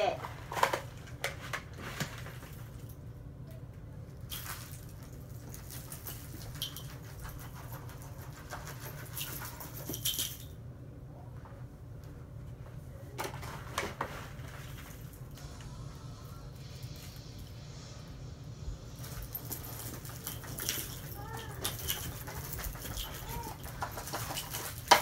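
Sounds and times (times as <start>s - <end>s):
low hum: 9.4s - 24.7s.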